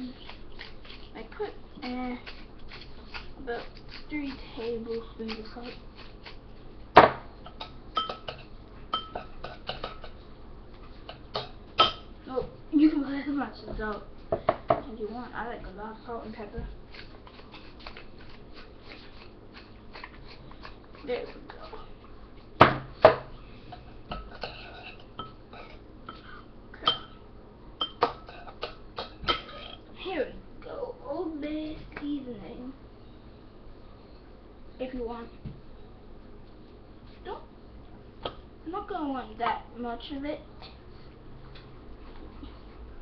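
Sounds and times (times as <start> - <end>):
metal spoon clinking on dish: 7.5 - 10.1
dishes knocking on a counter: 14.3 - 14.8.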